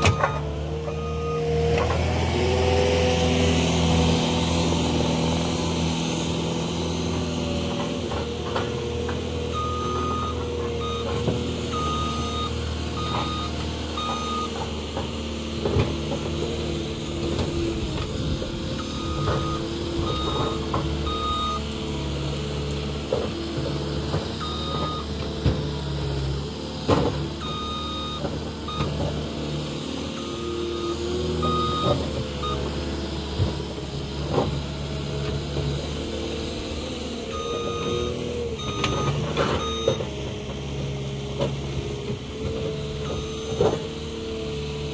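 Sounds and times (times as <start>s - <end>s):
reversing alarm beeping: 0.0s - 1.5s, 9.5s - 14.6s, 18.8s - 21.6s, 24.4s - 25.1s, 27.4s - 29.0s, 30.1s - 32.6s, 37.3s - 40.1s, 43.0s - 43.8s
diesel engine running: 0.0s - 44.9s.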